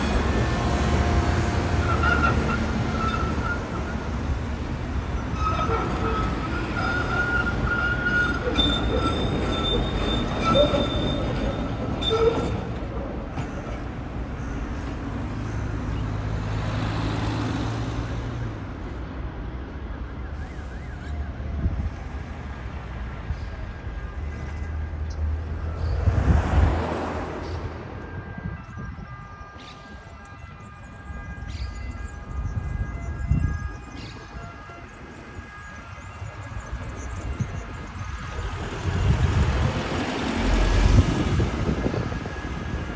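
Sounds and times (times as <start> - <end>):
tram wheels squealing on rails: 0.0 - 16.5, 19.9 - 28.8
street traffic hum: 0.0 - 42.9.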